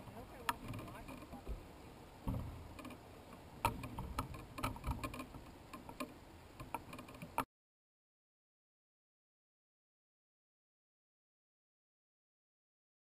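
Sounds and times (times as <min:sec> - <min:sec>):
sharp clicks and knocks: 0:00.1 - 0:01.6, 0:02.2 - 0:07.5.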